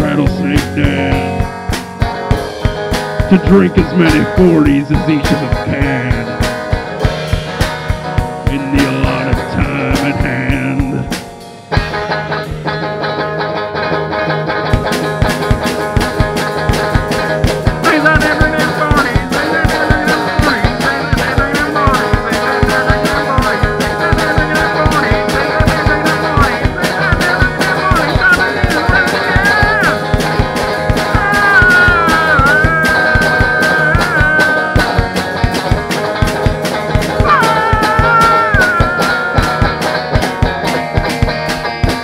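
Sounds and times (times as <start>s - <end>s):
fast drum beat: 0.0s - 13.3s, 14.6s - 42.0s
guitar: 0.0s - 42.0s.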